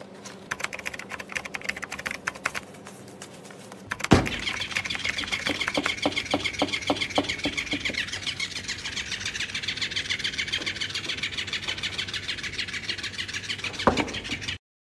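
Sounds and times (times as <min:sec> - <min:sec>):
toy motor whirring and clicking: 0:03.9 - 0:14.6.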